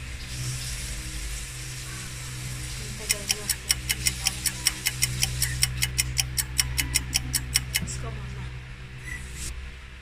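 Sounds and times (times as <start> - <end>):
rapid even ticking: 2.9 - 7.9.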